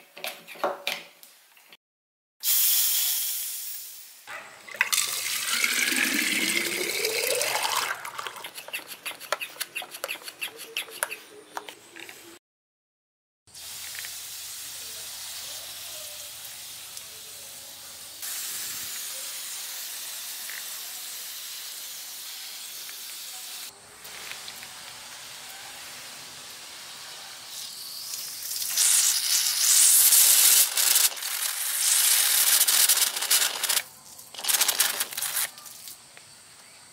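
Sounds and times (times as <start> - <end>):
spray bottle hissing mist: 27.5 - 33.8.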